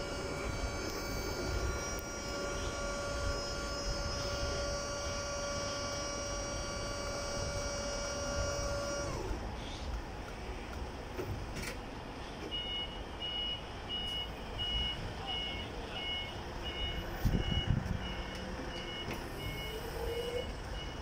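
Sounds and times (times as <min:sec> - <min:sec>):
rising whine: 0:00.0 - 0:09.4
two-tone warning beeps: 0:12.5 - 0:21.0.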